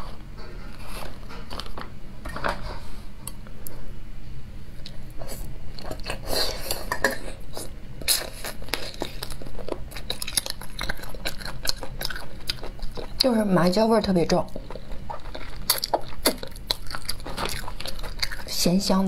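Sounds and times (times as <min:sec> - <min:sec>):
wet chewing and biting: 0:08.1 - 0:13.4, 0:14.5 - 0:18.6.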